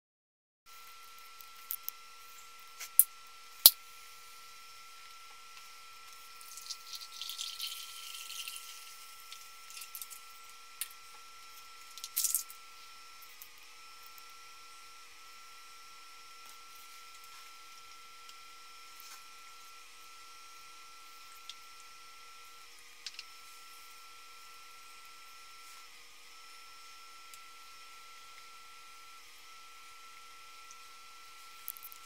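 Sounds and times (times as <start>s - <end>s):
soda pouring into a glass bowl: 6.2s - 10.4s.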